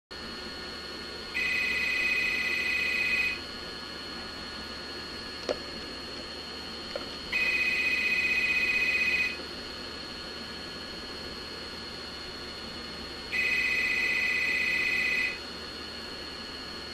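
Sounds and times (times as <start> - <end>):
telephone ringer warbling: 1.4 - 3.4, 7.3 - 9.4, 13.4 - 15.4.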